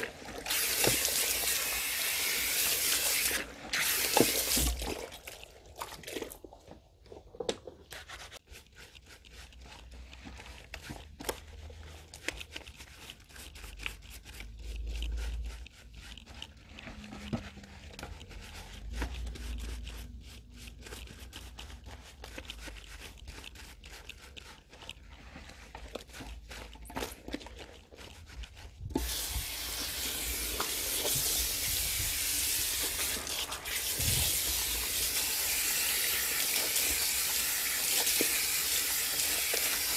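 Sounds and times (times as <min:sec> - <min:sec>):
spray hose water hissing: 0:00.0 - 0:04.8, 0:29.0 - 0:39.9
hands scrubbing wet hair: 0:00.0 - 0:07.0, 0:07.9 - 0:39.9.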